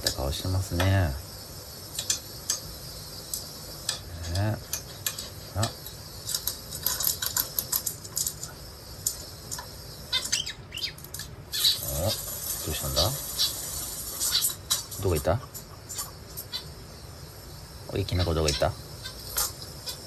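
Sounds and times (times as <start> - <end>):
bird clicking and tapping on wood: 3.3 - 10.4.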